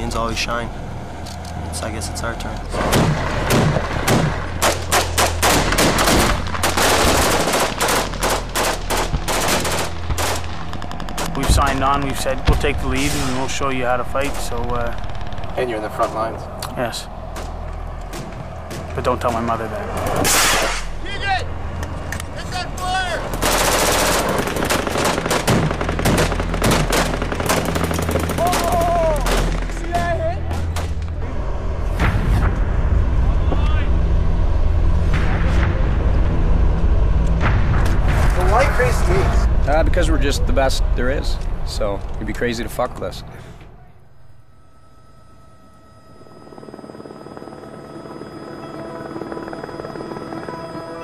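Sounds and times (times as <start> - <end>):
steady low hum: 0.0 - 28.4, 30.3 - 51.0
rifle gunfire: 2.8 - 11.8, 23.4 - 28.7
machine-gun fire: 2.8 - 13.6, 23.3 - 29.8.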